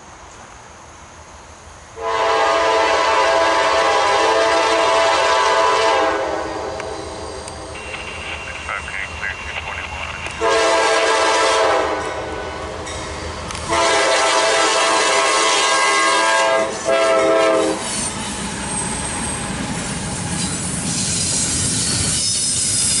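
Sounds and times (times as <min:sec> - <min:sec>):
train wheels rushing on rail: 0:00.0 - 0:23.0
locomotive horn blasts: 0:02.0 - 0:07.0, 0:10.4 - 0:12.2, 0:13.6 - 0:17.8.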